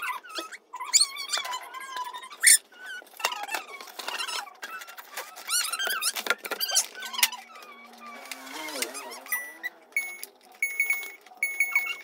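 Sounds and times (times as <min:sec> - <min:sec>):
packaging squeaks and rustles: 0:00.0 - 0:12.0
packaging clicks: 0:03.0 - 0:12.0.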